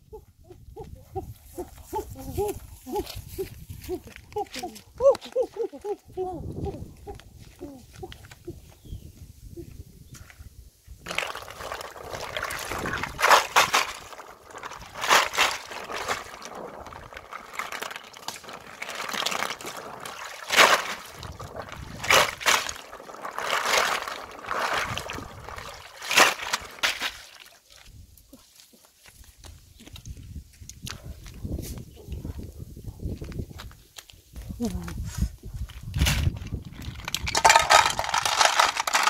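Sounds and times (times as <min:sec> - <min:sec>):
water sloshing and splashing: 0:11.1 - 0:28.0, 0:36.6 - 0:39.0.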